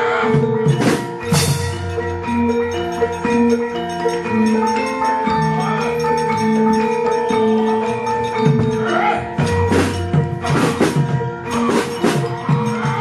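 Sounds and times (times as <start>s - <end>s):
gamelan playing: 0.0s - 13.0s.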